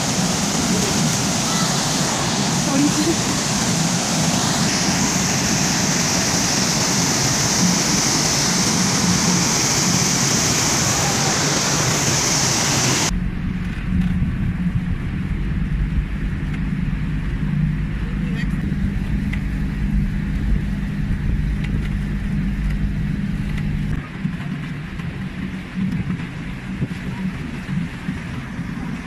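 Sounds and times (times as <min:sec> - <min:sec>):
waterfall rushing: 0:00.0 - 0:13.1
boat engine drone: 0:00.0 - 0:29.0.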